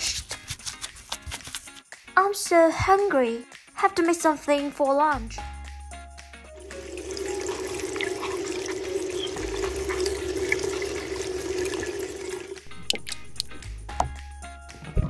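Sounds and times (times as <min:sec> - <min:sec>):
water running from tap: 0:06.5 - 0:13.5.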